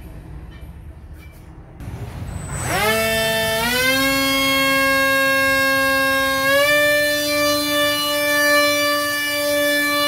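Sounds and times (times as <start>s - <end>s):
electric motor whine: 1.8s - 9.7s.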